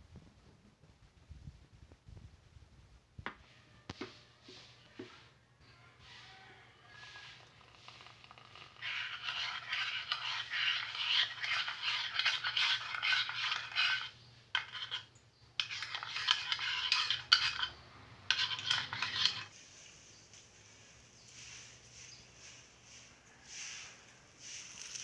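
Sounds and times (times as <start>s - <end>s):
spoon stirring in ceramic mug: 7.2s - 19.5s.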